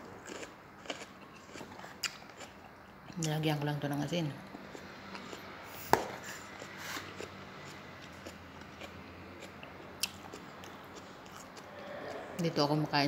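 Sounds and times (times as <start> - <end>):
person chewing crunchy vegetables: 0.0 - 3.2, 4.6 - 12.4.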